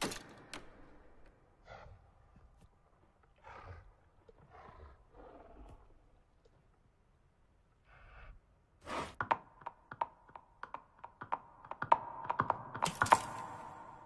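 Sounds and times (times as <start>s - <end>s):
sharp clicks and taps: 9.2s - 13.9s.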